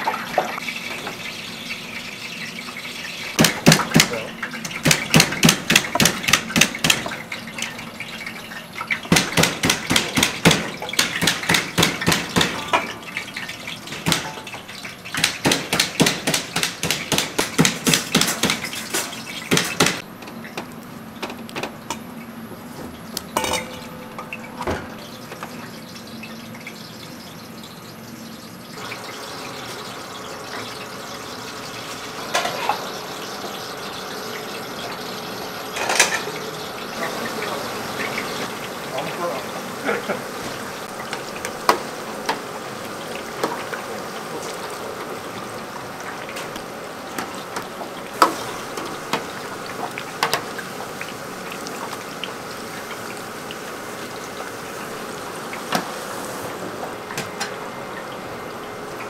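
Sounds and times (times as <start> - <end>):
water running from tap: 0.0 - 20.0, 23.6 - 59.0
rapid sharp knocks: 15.2 - 18.6.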